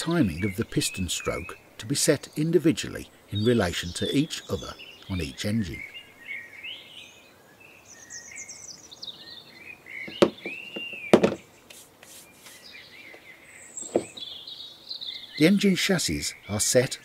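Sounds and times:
birds chirping: 0:00.0 - 0:17.0
metal parts knocking on bench mat: 0:10.1 - 0:11.4.

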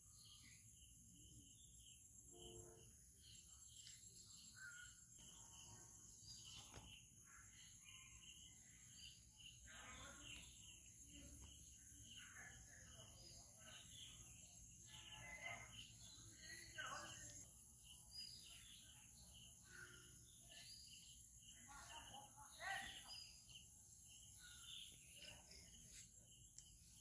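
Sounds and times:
bird chirps: 0:00.0 - 0:27.0.

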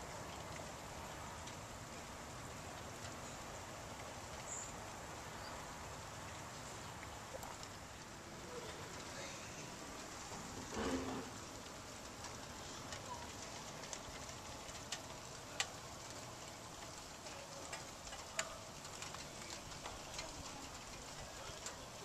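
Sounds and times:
rain hissing: 0:00.0 - 0:22.0
raindrops tapping surfaces: 0:00.0 - 0:22.0.

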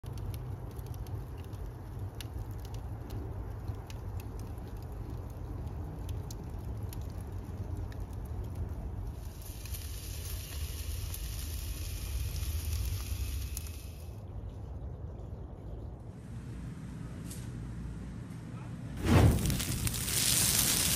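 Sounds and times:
wood fire crackling: 0:00.0 - 0:14.4, 0:19.0 - 0:20.9
meat sizzling on a grill: 0:09.2 - 0:14.1, 0:19.0 - 0:20.9.

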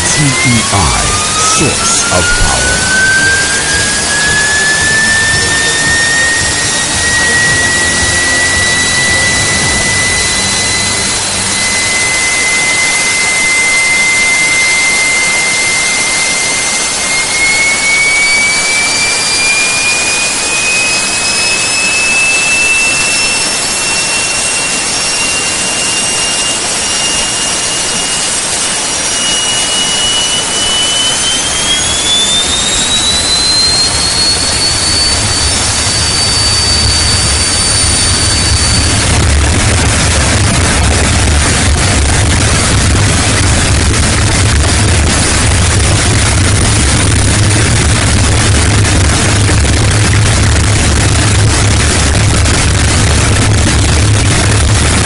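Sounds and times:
gas turbine engine roar: 0:00.0 - 0:55.0
turbine whine rising in pitch: 0:00.0 - 0:55.0
low rumble: 0:34.4 - 0:55.0.

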